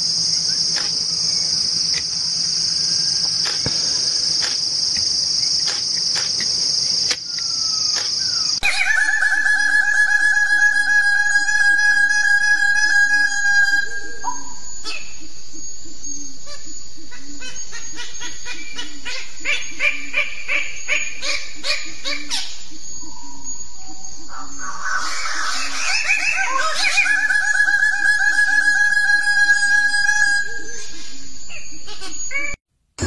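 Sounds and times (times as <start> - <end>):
loud harsh bird calls: 24.3 - 32.6.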